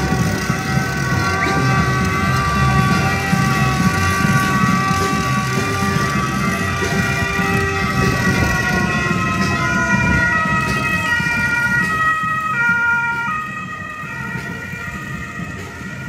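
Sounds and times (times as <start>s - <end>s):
rumbling background: 0.0s - 12.6s
siren tones: 0.0s - 16.0s.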